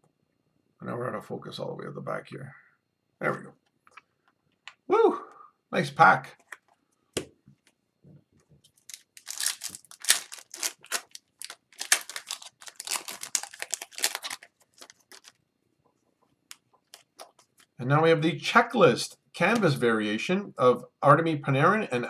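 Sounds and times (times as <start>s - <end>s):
foil wrapper tearing and crinkling: 8.8s - 15.4s.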